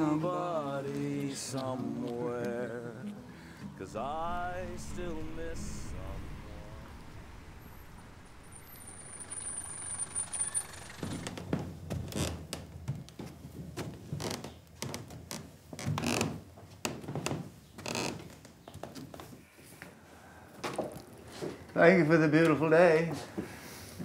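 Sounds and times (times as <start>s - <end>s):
background hiss: 0.0s - 11.7s.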